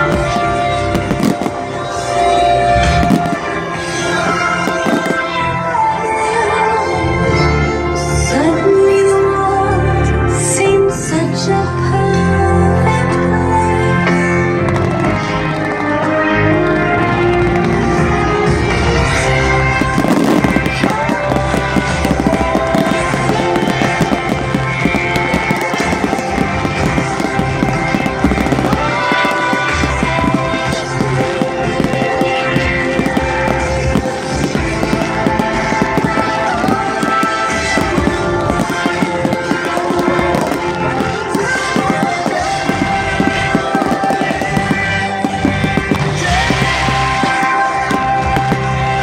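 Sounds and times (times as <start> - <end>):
fireworks crackling and popping: 0.0 - 6.2, 14.6 - 49.0
loud music: 0.0 - 49.0.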